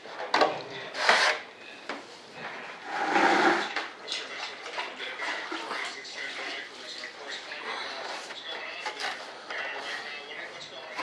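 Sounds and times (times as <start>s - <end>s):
scraping on foam: 2.9s - 3.7s.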